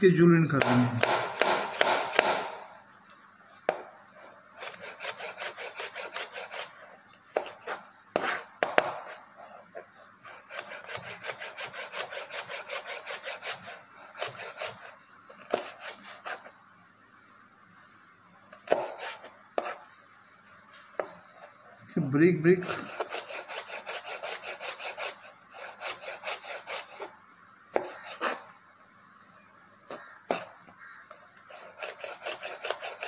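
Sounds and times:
knife chopping on cutting board: 0.6s - 2.6s, 8.2s - 9.2s, 18.6s - 19.8s, 27.7s - 28.4s.

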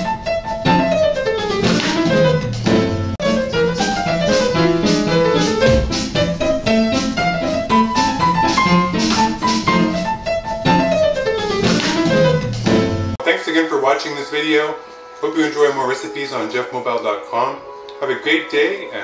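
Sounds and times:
drum kit playing: 0.0s - 13.2s
upright piano: 0.0s - 13.2s.

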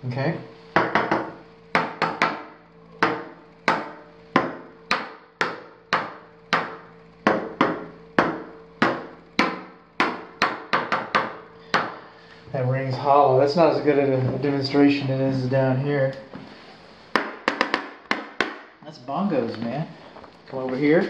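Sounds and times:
tool tapping on tiles: 0.7s - 12.0s, 17.1s - 18.6s.

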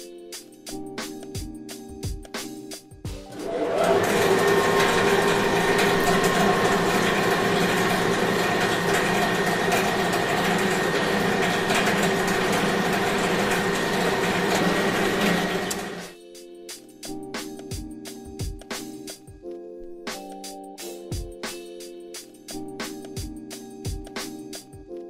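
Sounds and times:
machine whine: 3.3s - 16.1s
machinery clattering: 3.3s - 16.1s.

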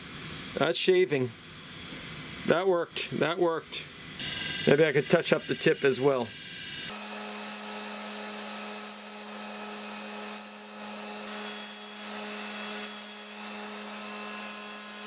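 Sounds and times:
bench grinder motor hum: 4.2s - 15.0s.

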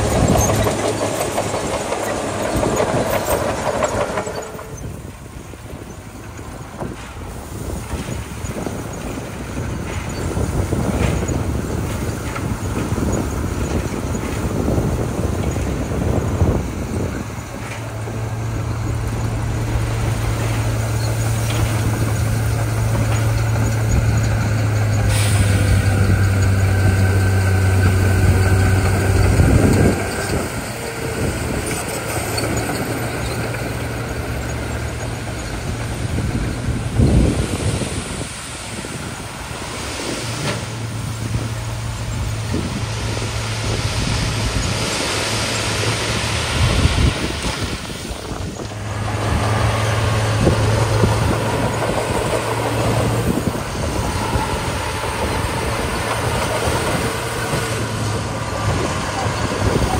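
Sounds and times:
truck engine revving: 7.6s - 59.9s
air hiss: 25.0s - 26.3s
gravel pouring: 34.7s - 59.9s.

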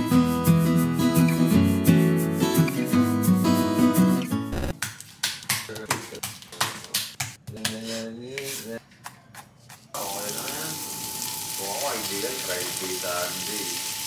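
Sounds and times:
vegetables sizzling in a frying pan: 10.0s - 14.0s.

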